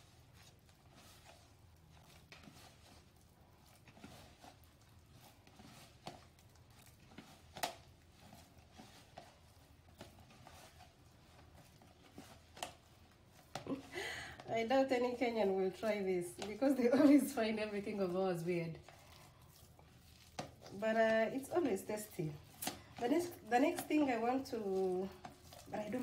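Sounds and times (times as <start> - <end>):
hands squelching dough: 0.0 - 26.0
low background hum: 8.1 - 26.0.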